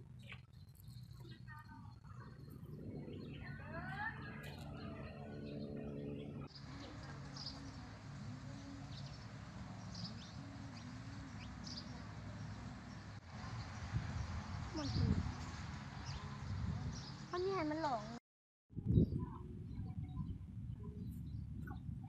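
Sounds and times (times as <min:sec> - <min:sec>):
birds chirping: 0:00.0 - 0:18.1
steady outdoor hiss: 0:00.0 - 0:18.2.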